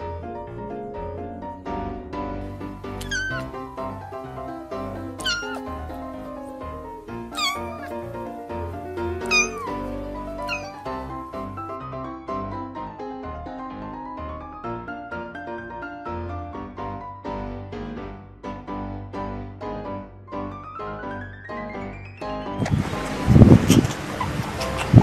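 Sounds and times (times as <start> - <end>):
instrumental music: 2.2 - 14.1
kitten mewing: 2.9 - 4.0, 4.8 - 11.6.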